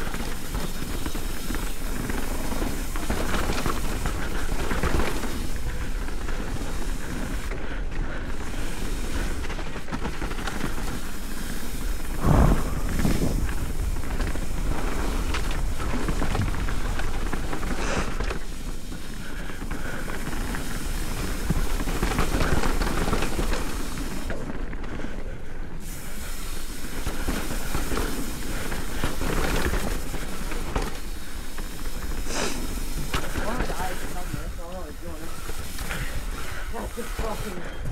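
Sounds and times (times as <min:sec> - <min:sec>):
tyres crunching over gravel: 0:00.0 - 0:25.1, 0:25.8 - 0:37.9
bike rattling: 0:00.0 - 0:37.9
wind rush on microphone: 0:08.1 - 0:24.3
heavy thump: 0:12.2 - 0:13.8.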